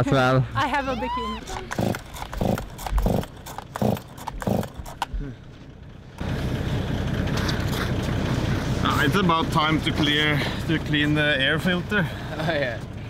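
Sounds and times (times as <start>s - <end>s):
chainsaw starter cord rips: 1.5s - 5.2s.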